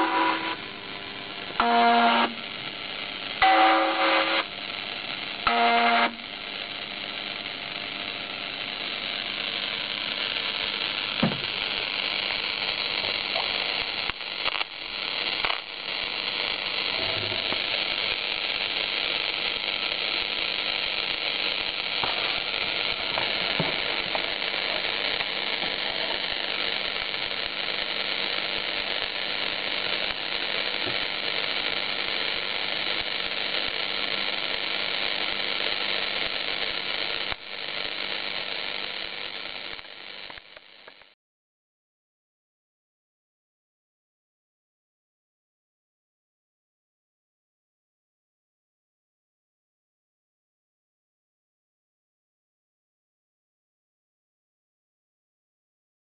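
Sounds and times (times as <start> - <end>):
radio static hiss: 0.0 - 41.2.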